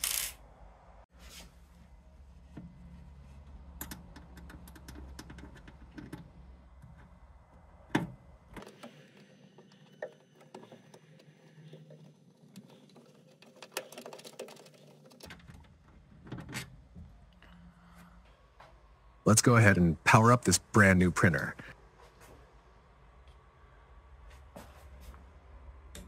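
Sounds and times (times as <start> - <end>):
hex key clicking and scraping: 0.0 - 0.4.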